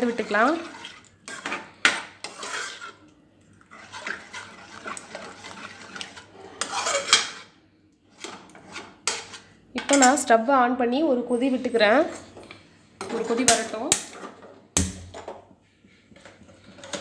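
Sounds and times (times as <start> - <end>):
metal ladle scraping pan: 0.0 - 10.2, 13.0 - 14.5.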